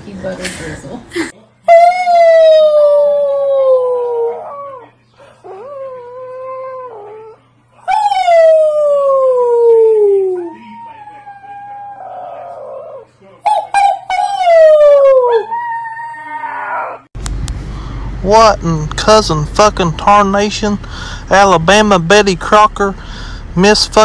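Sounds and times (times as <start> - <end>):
wolf pup howling: 1.7 - 17.1.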